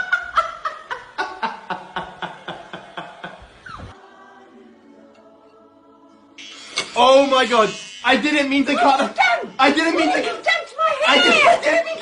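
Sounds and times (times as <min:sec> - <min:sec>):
rhythmic laughter: 0:00.0 - 0:03.6.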